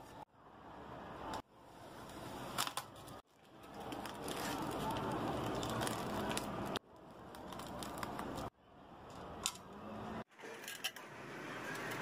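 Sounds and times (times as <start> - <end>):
plastic film peeling off metal: 2.5 - 8.5.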